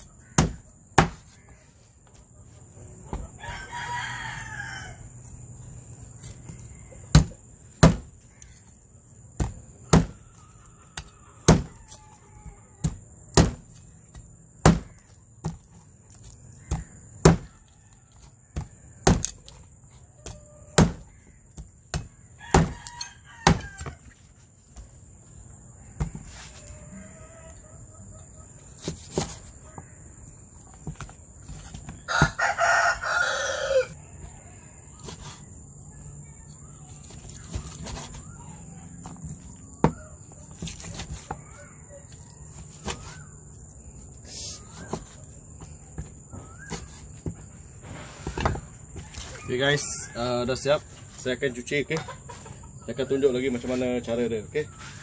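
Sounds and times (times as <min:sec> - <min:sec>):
cleaver chopping on wooden board: 0:00.3 - 0:01.4, 0:07.1 - 0:08.1, 0:09.4 - 0:10.2, 0:11.0 - 0:11.8, 0:12.8 - 0:13.7, 0:14.6 - 0:15.6, 0:16.6 - 0:17.6, 0:18.6 - 0:19.3, 0:20.2 - 0:22.8, 0:23.4 - 0:23.9
rooster crowing: 0:03.2 - 0:05.2, 0:10.1 - 0:12.8, 0:22.4 - 0:24.2, 0:26.6 - 0:28.1, 0:32.0 - 0:34.8.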